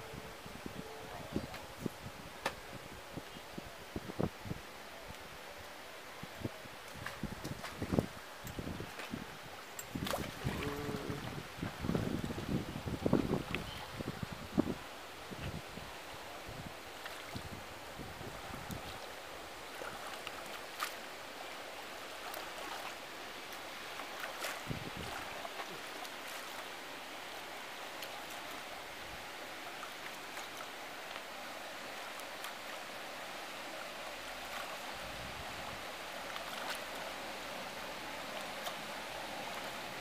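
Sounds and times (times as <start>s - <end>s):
pool water splashing: 6.7s - 12.4s, 18.7s - 40.0s.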